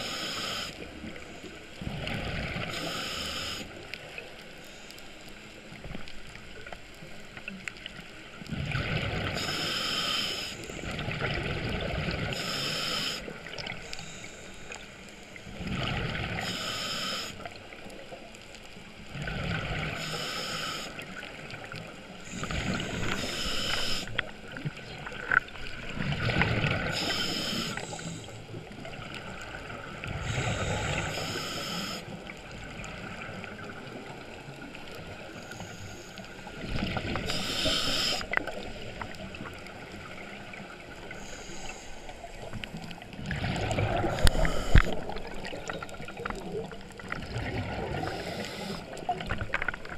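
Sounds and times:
regulator hissing inhalation: 0.0s - 0.8s, 2.7s - 3.7s, 9.4s - 10.6s, 12.4s - 13.4s, 16.4s - 17.4s, 20.0s - 21.0s, 22.3s - 24.2s, 26.9s - 28.4s, 30.3s - 32.1s, 37.3s - 38.5s, 41.1s - 42.1s, 44.1s - 45.1s, 48.0s - 49.0s.

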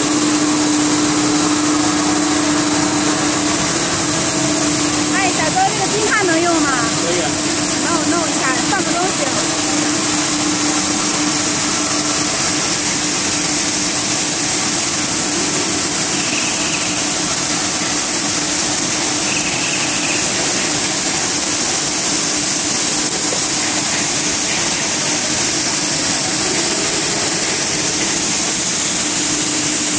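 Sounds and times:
low machine hum: 0.0s - 29.9s
machine hiss: 0.0s - 29.9s.

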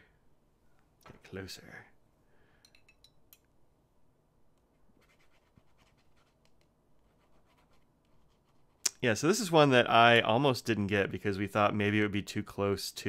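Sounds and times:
pen scratching on paper: 5.0s - 6.4s, 7.0s - 8.8s.

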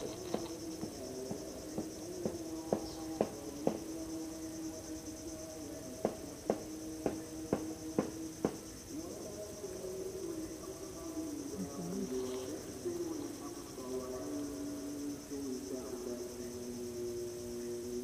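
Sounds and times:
insects chirring: 0.0s - 18.0s
low steady drone: 6.7s - 18.0s.

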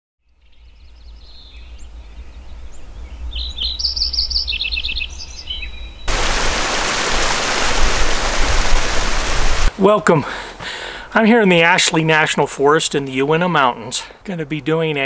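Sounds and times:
birds chirping and trilling: 0.2s - 9.4s
rocky mountain stream rushing: 6.1s - 9.7s.

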